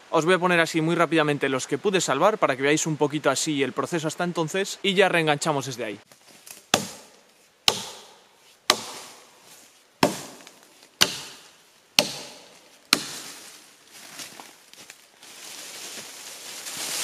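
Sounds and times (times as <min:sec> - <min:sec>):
axe chopping wood: 0:06.5 - 0:09.3, 0:10.0 - 0:13.4.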